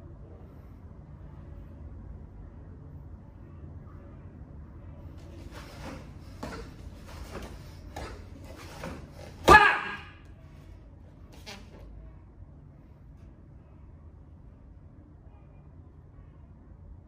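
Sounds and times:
loud short shout: 9.4s - 10.2s.

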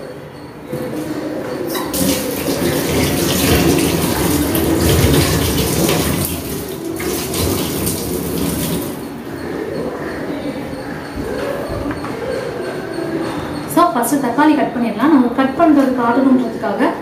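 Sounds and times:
tap running into sink: 1.7s - 9.0s.

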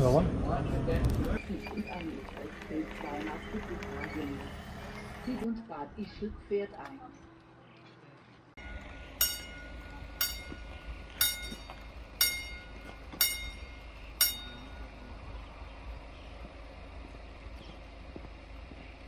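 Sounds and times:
steady low rumble: 8.5s - 19.0s
level crossing warning bell: 8.6s - 15.1s.

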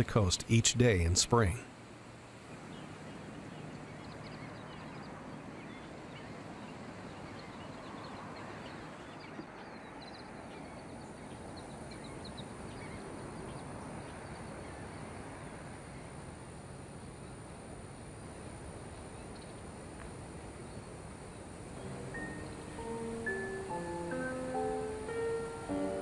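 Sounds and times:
steady even hiss: 0.0s - 7.4s, 11.0s - 26.0s
small birds chirping: 2.4s - 16.2s, 20.6s - 26.0s.

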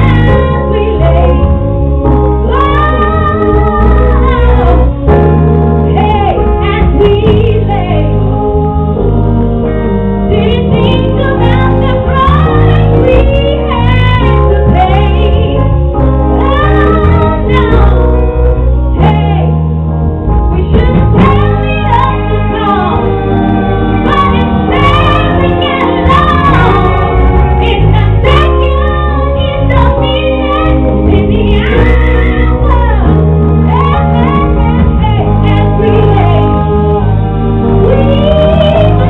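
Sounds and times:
person singing: 0.0s - 19.6s, 20.5s - 39.0s
live band playing: 0.0s - 39.0s.

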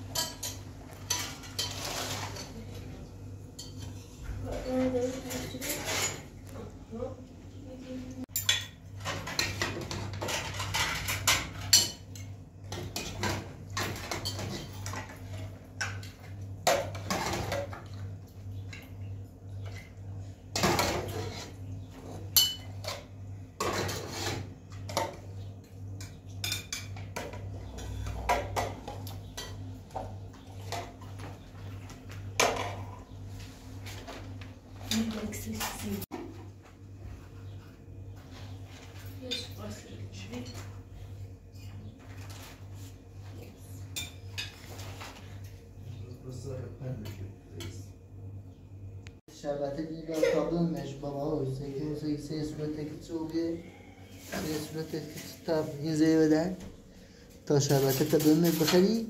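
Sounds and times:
utensils clinking on metal plates: 0.0s - 6.4s, 8.3s - 33.0s, 38.9s - 40.8s, 57.6s - 59.0s.

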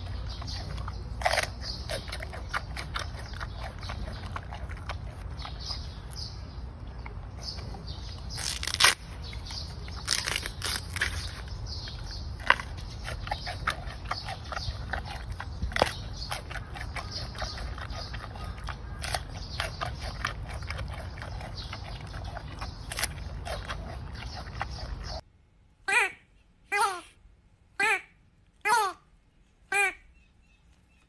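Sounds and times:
panda crunching bamboo: 0.0s - 6.3s, 7.4s - 25.2s
low background rumble: 0.0s - 31.0s.

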